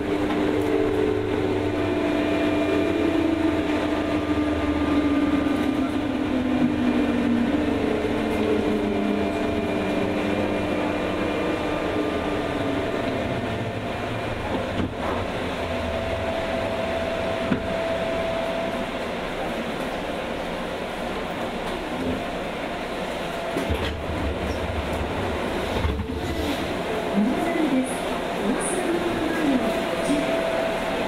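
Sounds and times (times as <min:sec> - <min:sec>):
train wheels rumbling on rails: 0:00.0 - 0:31.0.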